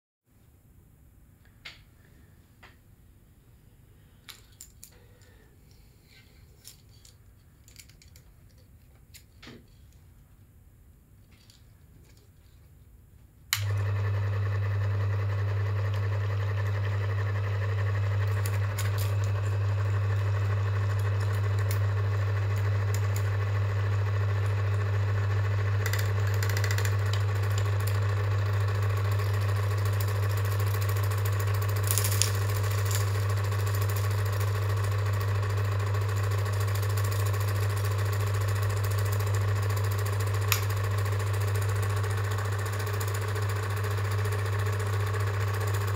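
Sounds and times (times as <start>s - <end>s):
film projector humming: 13.5s - 45.9s.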